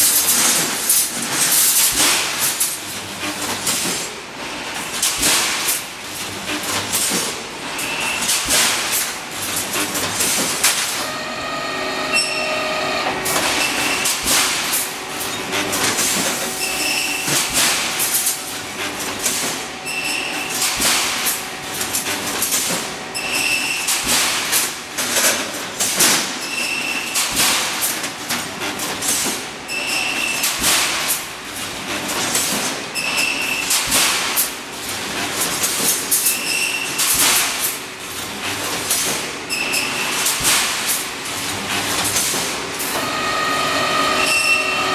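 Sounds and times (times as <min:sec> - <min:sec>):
welding machine clatter and clanks: 0:00.0 - 0:11.2, 0:13.0 - 0:44.9
short high tone: 0:11.0 - 0:13.2.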